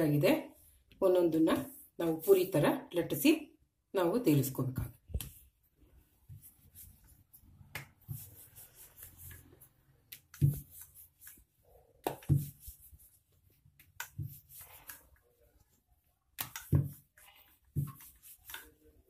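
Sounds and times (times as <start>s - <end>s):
rolling pin rolling dough: 6.2s - 19.0s.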